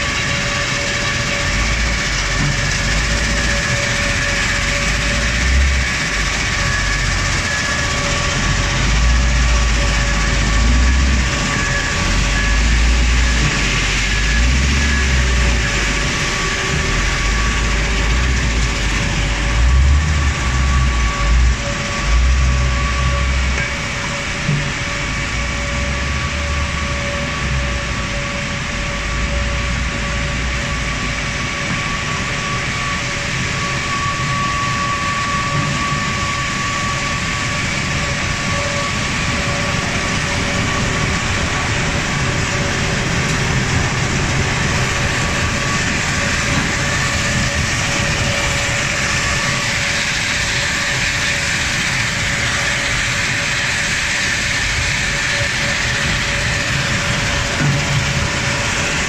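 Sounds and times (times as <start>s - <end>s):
constant mechanical whine: 0.0s - 59.0s.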